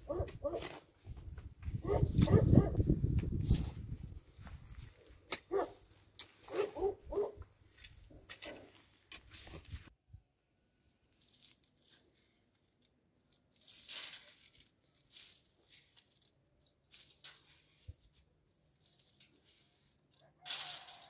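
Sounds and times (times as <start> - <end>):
footsteps on straw and earth: 0.0 - 9.9.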